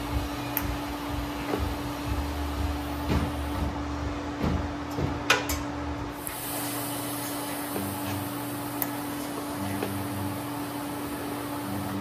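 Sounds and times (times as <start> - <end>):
welder arc hissing and crackling: 0.0 - 3.7, 6.1 - 12.0.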